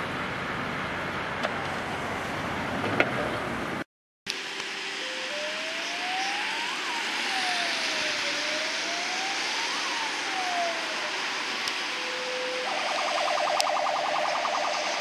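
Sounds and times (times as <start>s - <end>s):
traffic hiss: 0.0s - 15.0s
police siren wailing: 4.3s - 15.0s.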